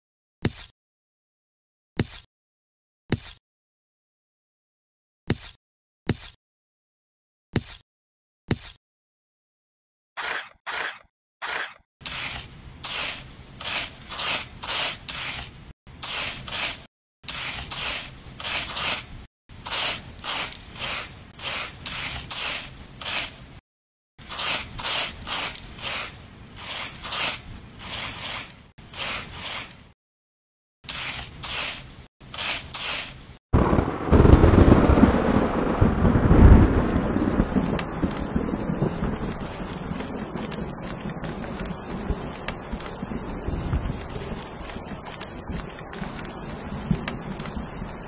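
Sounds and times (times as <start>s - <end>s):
brush and trowel scraping sand: 0.4s - 0.7s, 2.0s - 2.3s, 3.1s - 3.4s, 5.3s - 6.4s, 7.6s - 7.8s, 8.5s - 8.8s, 10.2s - 23.6s, 24.2s - 30.0s, 30.8s - 33.4s.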